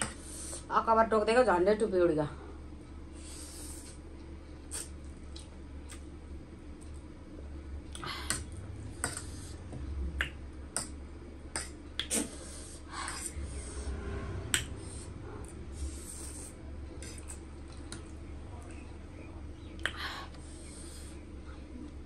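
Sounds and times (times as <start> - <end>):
wet chewing with mouth clicks: 3.7 - 6.2
lip smacks: 4.7 - 6.1, 10.2 - 12.5, 19.8 - 20.0
slurping noodles: 12.0 - 14.1.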